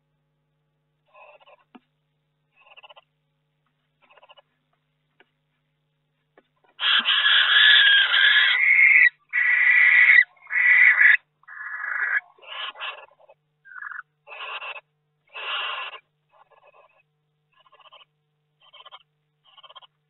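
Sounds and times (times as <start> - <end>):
barn owl hissing screeches: 6.8 - 17.0.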